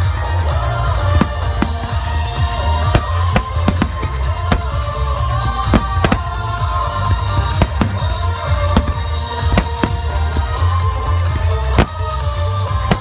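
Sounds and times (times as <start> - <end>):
music: 0.0 - 13.0
firework shells bursting: 1.0 - 2.1, 2.7 - 10.7, 12.8 - 13.0.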